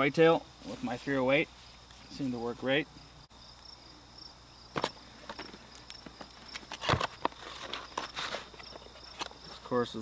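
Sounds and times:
insects chirping: 0.0s - 10.0s
cardboard box clicks and scrapes: 6.5s - 9.3s.

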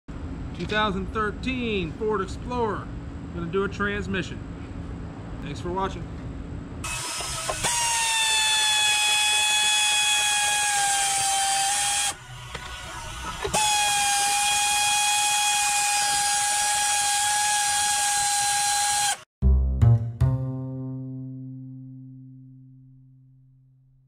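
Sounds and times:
power ratchet whining: 6.8s - 19.2s.

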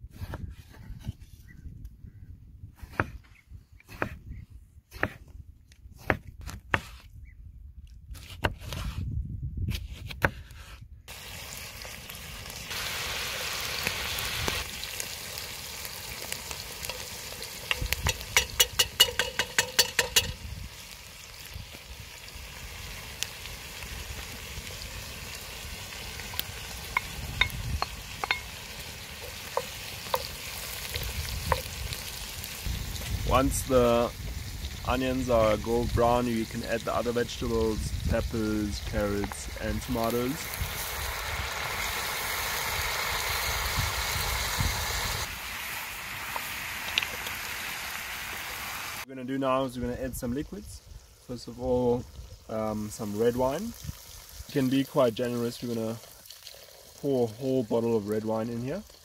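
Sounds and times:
onions sizzling in a pot: 11.1s - 49.1s, 50.1s - 59.0s
wooden spoon knocking on pot: 17.7s - 20.4s.

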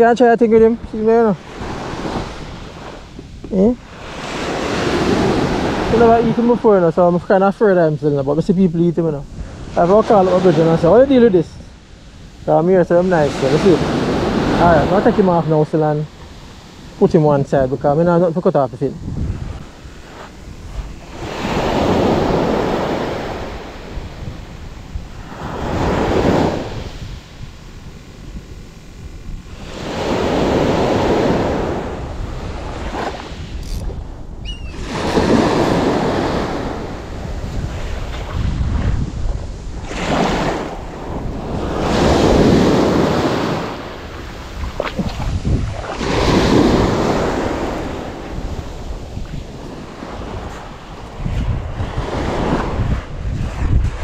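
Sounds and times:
wind noise on microphone: 0.0s - 54.0s
waves washing up beach: 0.6s - 54.0s
waves washing over stony shore: 39.5s - 50.6s.

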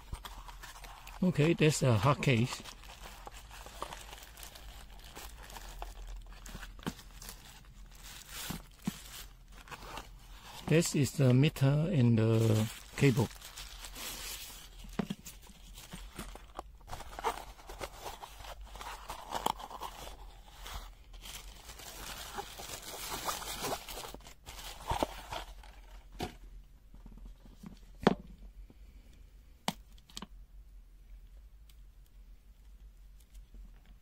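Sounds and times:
packaging crinkling and tearing: 0.0s - 11.2s, 12.2s - 25.7s.

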